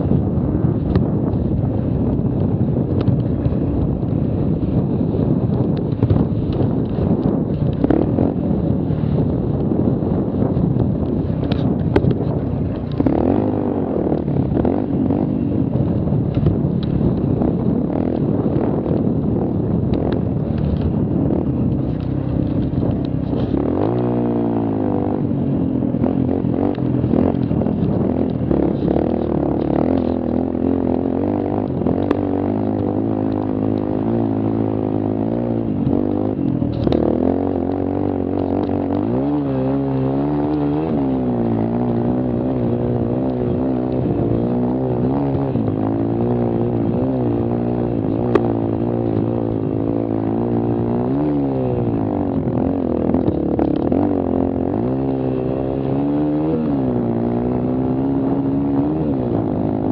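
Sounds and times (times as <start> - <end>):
quad engine revving: 11.0 - 19.3, 20.0 - 59.9.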